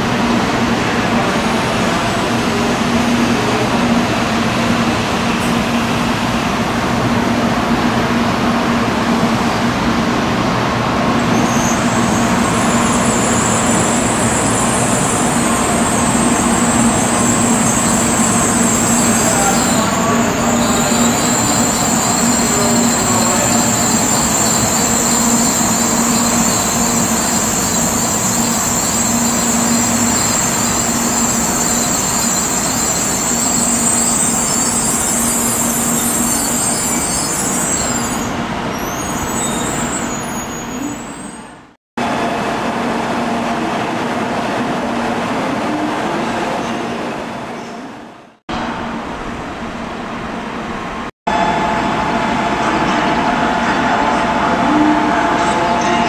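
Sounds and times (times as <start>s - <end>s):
train equipment hum: 11.8s - 38.9s.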